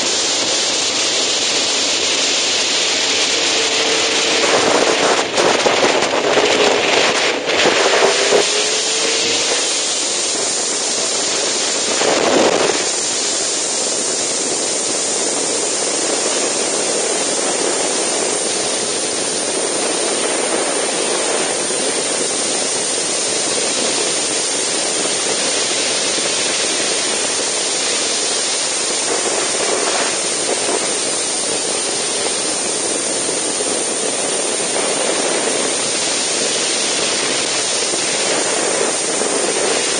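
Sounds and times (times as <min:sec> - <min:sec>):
wind rush: 0:00.0 - 0:39.9
faint motorcycle engine: 0:01.4 - 0:12.8.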